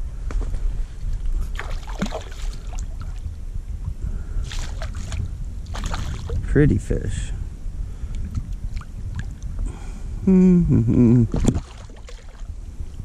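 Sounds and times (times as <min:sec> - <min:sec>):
low rumble: 0:00.0 - 0:13.0
fish splashing in water: 0:01.5 - 0:03.2, 0:04.4 - 0:06.4, 0:11.4 - 0:12.5.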